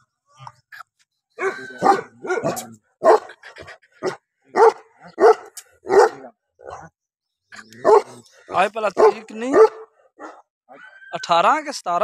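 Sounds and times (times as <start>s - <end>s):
dog barking: 1.4s - 3.3s, 4.0s - 6.8s, 7.8s - 8.2s, 8.9s - 10.5s.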